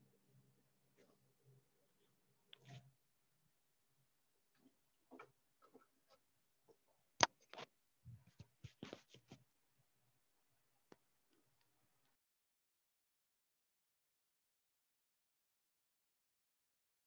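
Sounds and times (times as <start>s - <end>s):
faint clicks and knocks: 4.5s - 9.5s.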